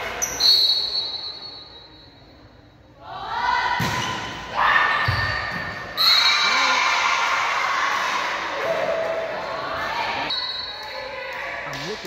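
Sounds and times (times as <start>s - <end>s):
referee's whistle: 0.2s - 2.3s.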